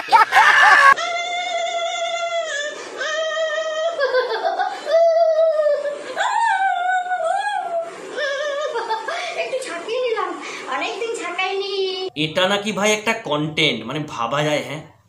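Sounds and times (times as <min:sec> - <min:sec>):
woman singing long high notes: 0:01.0 - 0:04.1.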